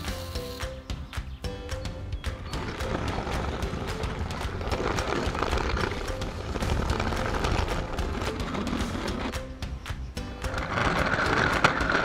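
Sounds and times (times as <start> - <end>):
toy train clicking and rattling: 10.4 - 12.0.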